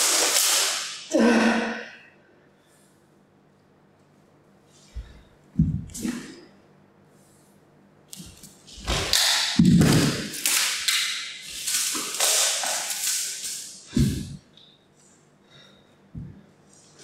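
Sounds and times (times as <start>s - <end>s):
heavy thuds of feet and body: 5.0s - 6.0s.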